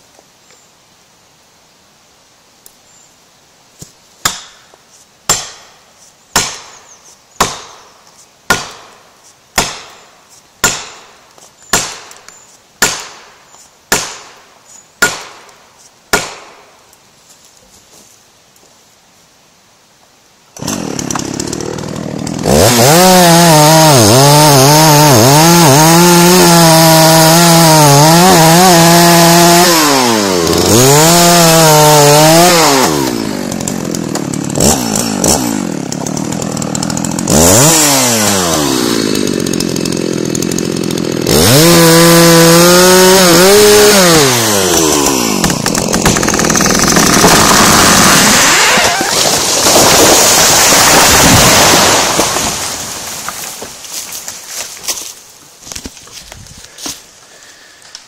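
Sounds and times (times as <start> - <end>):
tree trunk cracking: 20.6 - 57.0
chainsaw cutting under load: 20.6 - 58.0.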